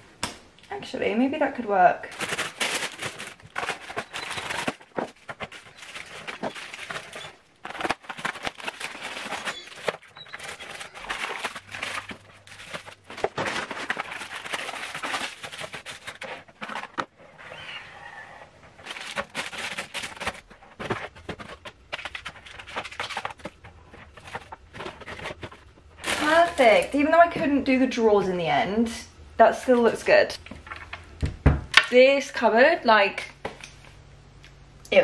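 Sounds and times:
plastic wrappers crinkling: 0:01.8 - 0:17.7, 0:18.7 - 0:27.3.

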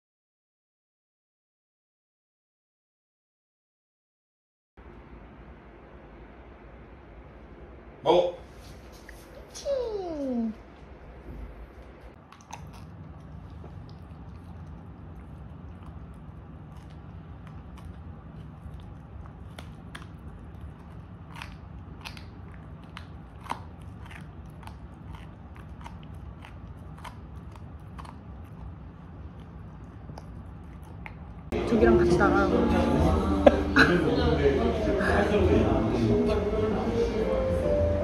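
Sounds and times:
steady low hum: 0:04.8 - 0:38.0
dog chewing and crunching: 0:10.9 - 0:32.3.

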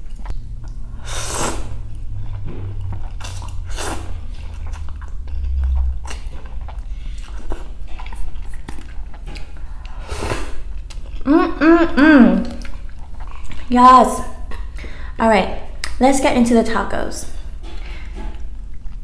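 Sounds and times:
noodles slurped: 0:00.0 - 0:11.2
wet chewing with mouth clicks: 0:00.0 - 0:15.0, 0:17.4 - 0:19.0.

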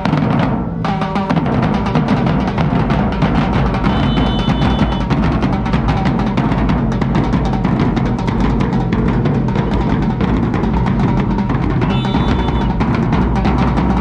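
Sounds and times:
drums and percussion rhythm: 0:00.0 - 0:14.0
live band playing: 0:03.8 - 0:05.1, 0:11.8 - 0:12.8.

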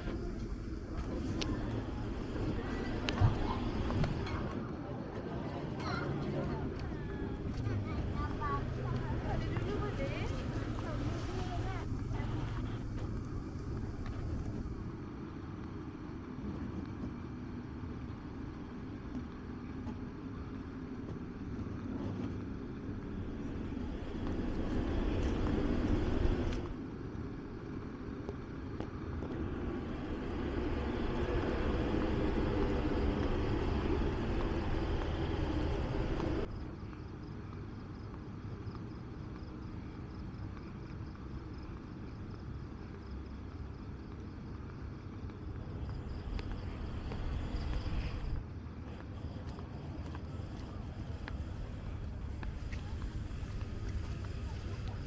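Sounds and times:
steady low rumble: 0:00.0 - 0:04.6, 0:06.5 - 0:15.4, 0:22.8 - 0:27.8, 0:28.9 - 0:36.7, 0:45.4 - 0:55.0.

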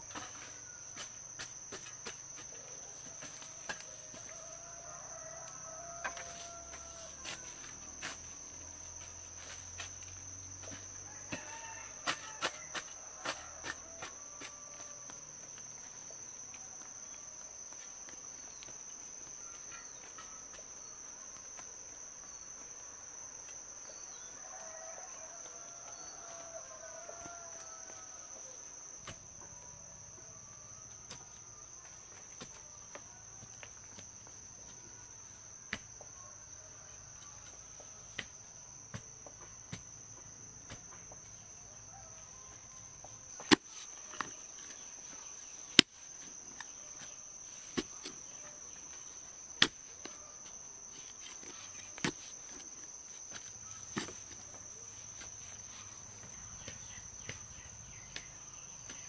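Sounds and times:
faint chicken calls: 0:02.6 - 0:07.9.

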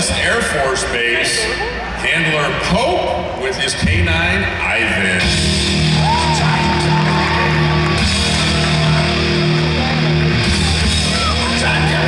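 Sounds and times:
rock music playing loudly: 0:03.8 - 0:12.0.

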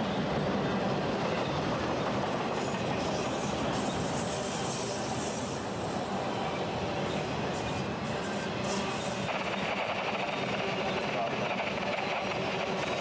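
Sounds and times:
freight train wheels rumbling: 0:00.0 - 0:13.0
high-pitched wheel squeal: 0:06.5 - 0:09.3.

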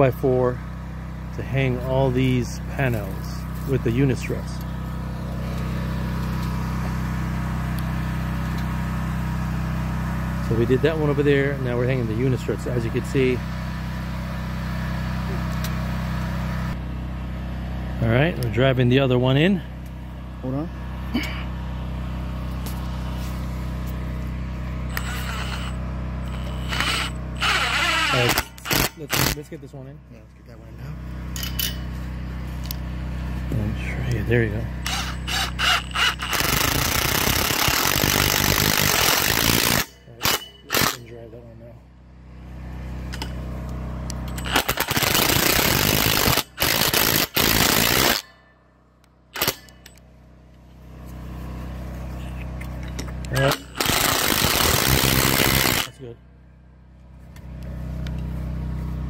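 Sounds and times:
small engine humming: 0:19.5 - 0:48.3, 0:49.3 - 0:56.0
power tool whirring: 0:24.7 - 0:29.4, 0:34.7 - 0:41.0, 0:44.1 - 0:48.3, 0:49.4 - 0:50.0, 0:53.3 - 0:56.0
impact driver rattling: 0:26.3 - 0:29.4, 0:34.8 - 0:41.0, 0:44.3 - 0:48.3, 0:49.4 - 0:49.9, 0:53.3 - 0:55.9.

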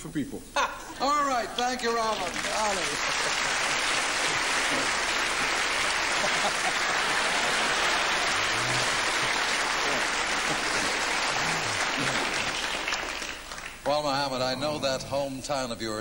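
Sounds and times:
audience applauding: 0:01.6 - 0:14.0.

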